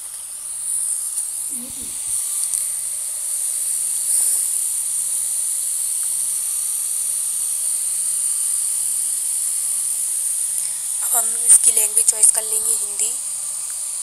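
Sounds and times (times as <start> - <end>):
high-pitched hiss: 0.0 - 14.0
faint low hum: 0.8 - 2.7.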